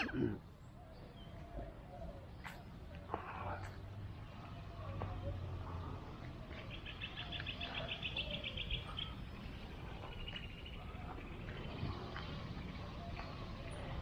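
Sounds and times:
bird singing rapid trill: 0:06.6 - 0:14.0.

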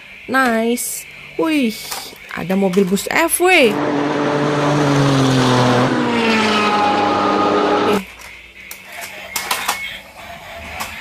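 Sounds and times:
vehicle engine driving: 0:03.6 - 0:08.0.

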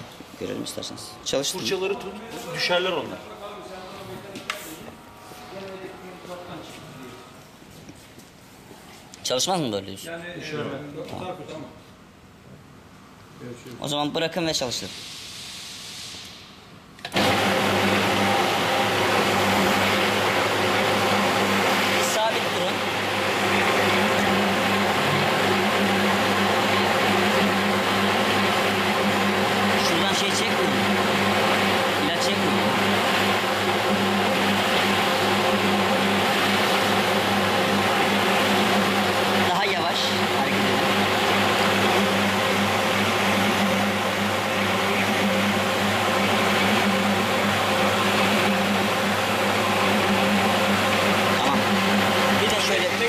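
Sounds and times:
carpet washing machine running: 0:17.0 - 0:53.0
electric motor hum: 0:17.1 - 0:53.0
spinning brushes rushing: 0:17.2 - 0:53.0.

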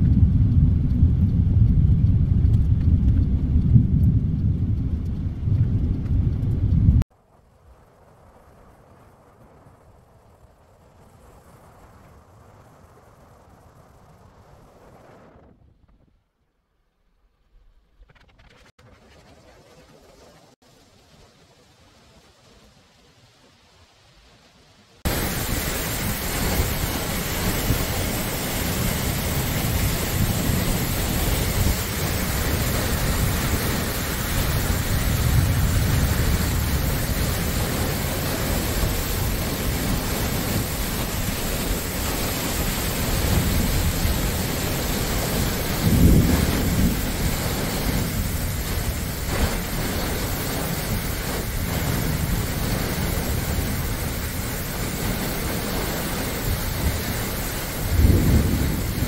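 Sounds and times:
low rumble: 0:00.0 - 0:07.1
wind gusting over microphone: 0:00.0 - 0:16.2, 0:25.0 - 0:59.0
heavy rain pouring: 0:20.7 - 0:59.0.

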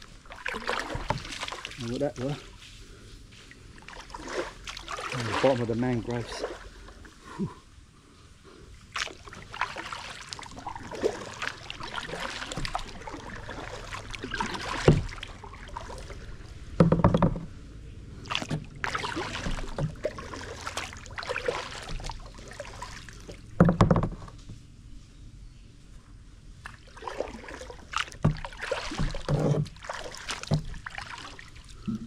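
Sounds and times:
paddle splashing water: 0:00.0 - 0:07.4, 0:08.8 - 0:24.6, 0:26.6 - 0:32.0
hollow knocks on kayak: 0:14.5 - 0:15.2, 0:16.8 - 0:17.5, 0:23.3 - 0:24.4, 0:28.1 - 0:30.8.

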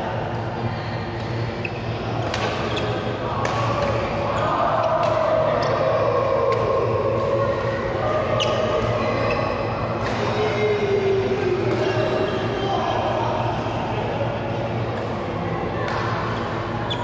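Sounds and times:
droning sports hall background noise: 0:00.0 - 0:17.0
badminton rackets hitting shuttlecock: 0:02.2 - 0:04.1, 0:05.0 - 0:05.2.

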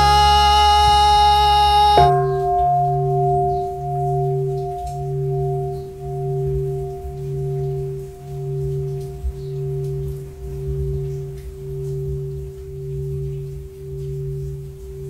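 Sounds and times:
band holding chord: 0:00.0 - 0:09.0
temple bell ringing: 0:00.0 - 0:11.1.

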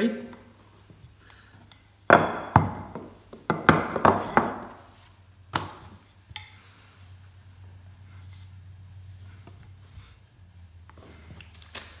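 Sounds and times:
rolling pin knocking on worktop: 0:02.1 - 0:04.8.

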